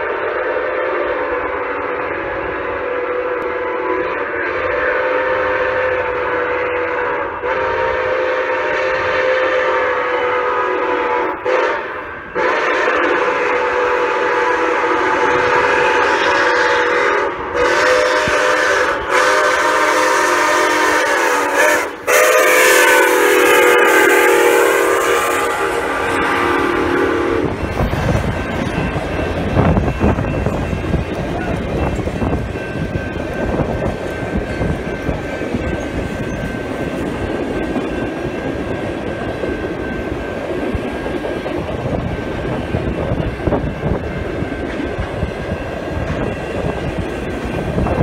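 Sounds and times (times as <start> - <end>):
steam whistle blasts: 0.0 - 27.6
train cars rumbling past: 0.0 - 48.0.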